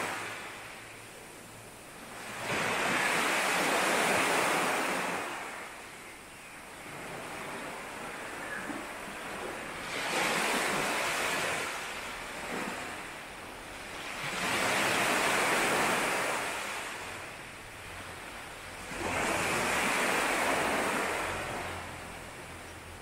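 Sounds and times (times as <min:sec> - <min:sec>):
sea waves breaking on shore: 0:00.0 - 0:23.0.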